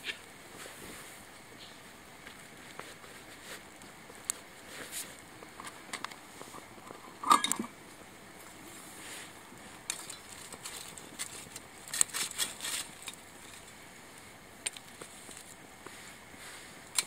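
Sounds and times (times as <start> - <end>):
fire crackling and snapping: 0.0 - 17.0
metal clink: 7.2 - 7.7.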